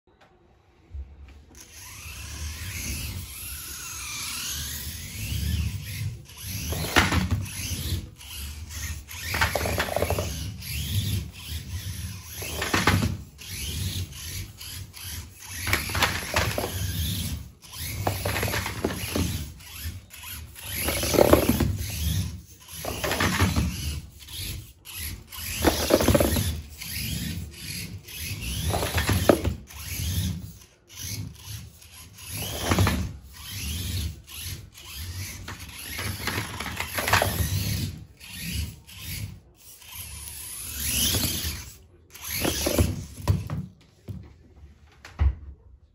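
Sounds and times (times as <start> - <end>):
tires squealing on wooden floor: 1.7 - 39.4, 40.0 - 43.6.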